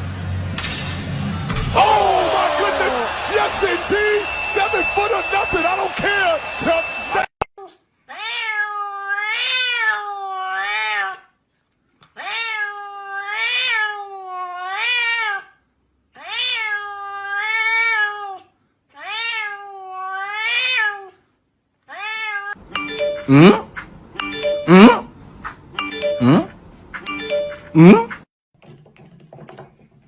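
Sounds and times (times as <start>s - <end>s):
cat yowling: 8.1s - 11.3s, 12.2s - 15.6s, 16.2s - 21.2s, 21.9s - 22.6s.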